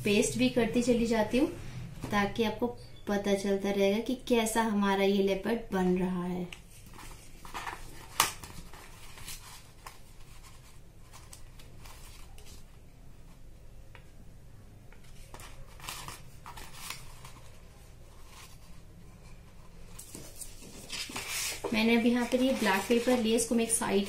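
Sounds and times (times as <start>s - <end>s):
paper rustling: 6.7s - 12.8s, 14.9s - 24.0s.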